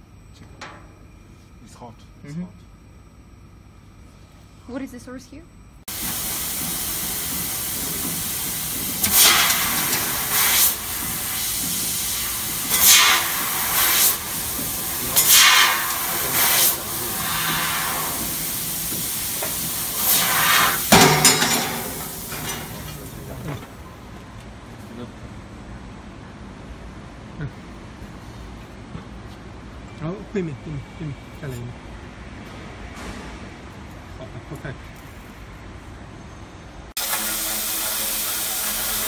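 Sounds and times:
laser cutter gas hissing: 5.9s - 23.6s, 37.0s - 39.0s.

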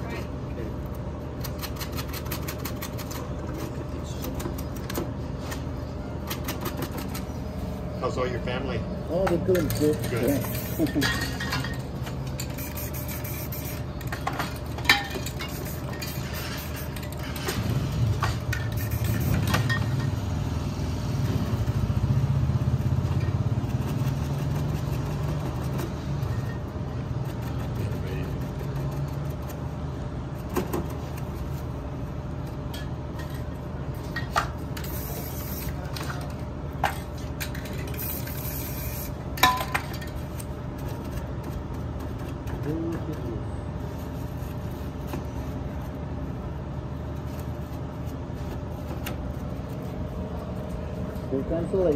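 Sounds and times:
spray-paint cans clinking: 9.6s - 17.6s.

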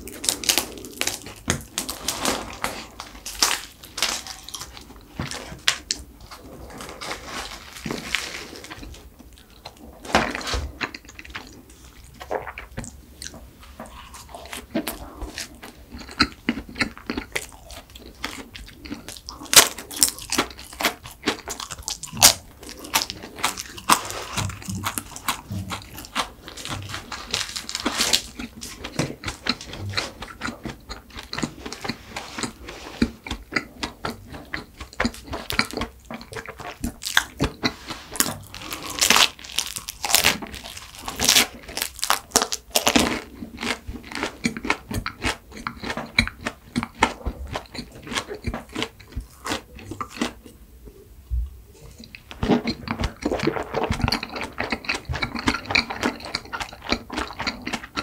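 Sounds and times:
pastry crackling as torn: 0.0s - 6.0s, 19.2s - 33.1s
crunchy chewing of pastry: 0.0s - 51.0s, 51.7s - 58.0s.

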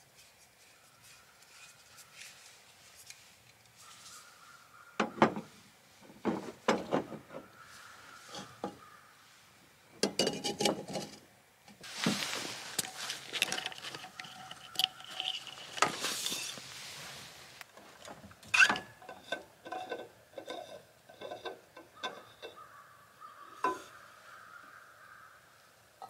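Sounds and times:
camp cookware clinking: 10.0s - 11.2s, 12.6s - 16.6s, 18.4s - 22.6s, 23.6s - 23.9s.

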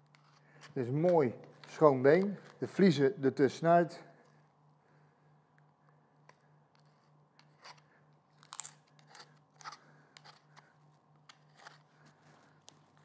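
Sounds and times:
knife scraping bones: 8.5s - 10.7s, 11.3s - 11.9s.

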